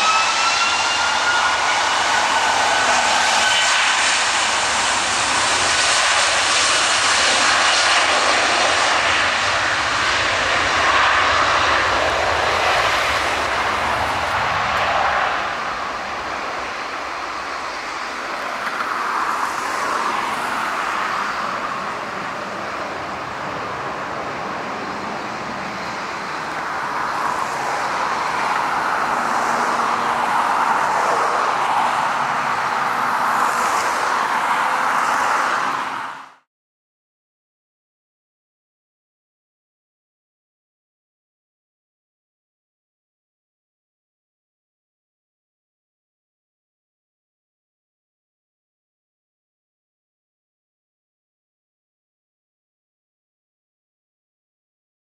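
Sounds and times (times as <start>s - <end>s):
jet engines at takeoff: 0.0s - 36.5s.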